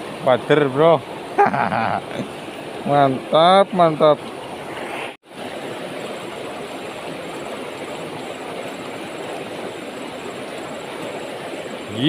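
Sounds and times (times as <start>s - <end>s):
river flowing over rocks: 5.3s - 12.0s.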